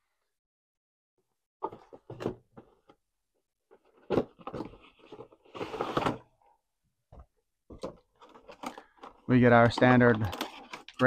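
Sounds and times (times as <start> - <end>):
cardboard and plastic rustling: 3.7 - 6.4, 7.7 - 11.0.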